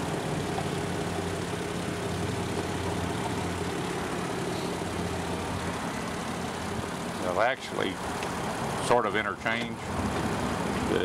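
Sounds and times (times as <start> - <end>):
engine idling: 0.0 - 11.0.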